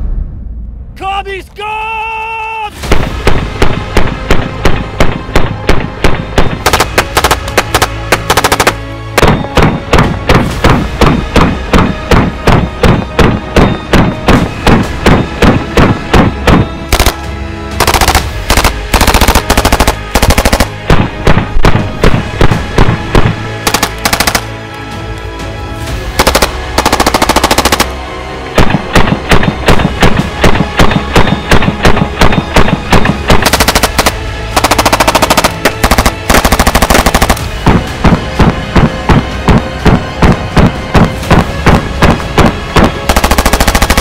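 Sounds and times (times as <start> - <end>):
submachine gun firing bursts: 6.6 - 8.8, 16.9 - 17.2, 17.8 - 20.8, 23.7 - 24.5, 26.2 - 27.9, 32.6 - 37.5, 42.8 - 44.0.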